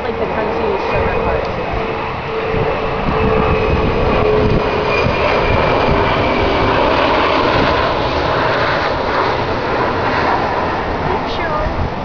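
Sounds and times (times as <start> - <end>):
loud rumbling noise: 0.0 - 12.0.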